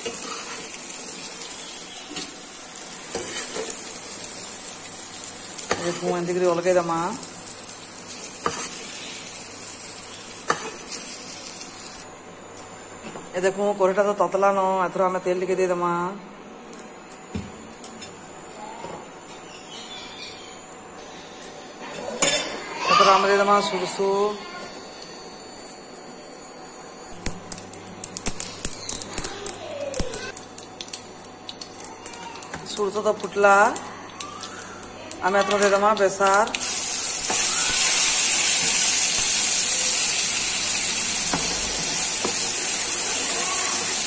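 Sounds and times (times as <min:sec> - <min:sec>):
okra sizzling in oil: 0:00.0 - 0:12.0, 0:30.1 - 0:44.0
seeds popping in hot oil: 0:27.2 - 0:38.0.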